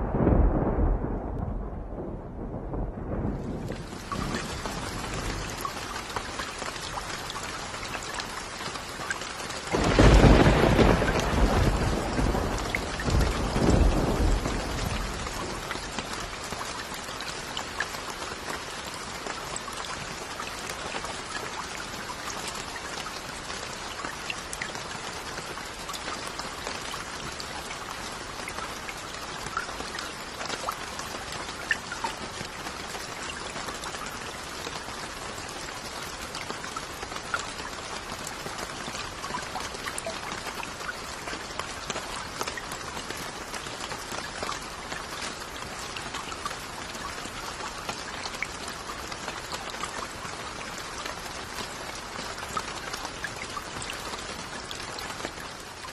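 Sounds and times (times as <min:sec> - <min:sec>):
deep thunder roll: 0:00.0 - 0:05.6, 0:09.8 - 0:15.6
steady rain falling: 0:00.0 - 0:55.9
raindrops ticking: 0:01.3 - 0:55.9.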